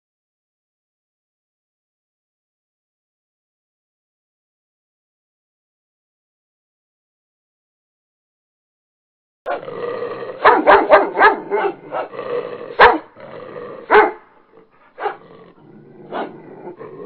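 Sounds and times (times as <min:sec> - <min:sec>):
dog barking: 0:09.5 - 0:09.7, 0:10.4 - 0:12.2, 0:12.8 - 0:13.2, 0:13.9 - 0:14.3, 0:14.9 - 0:15.3, 0:16.1 - 0:16.8.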